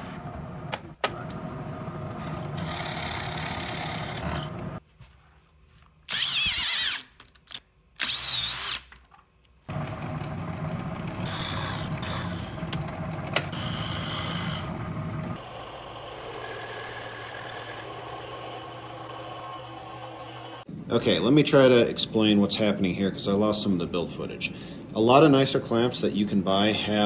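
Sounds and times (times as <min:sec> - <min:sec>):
drill press boring wood: 0:02.2 - 0:04.8, 0:09.7 - 0:20.6
power tool whining: 0:09.7 - 0:20.7
bandsaw cutting steel: 0:11.2 - 0:12.7, 0:13.5 - 0:20.7.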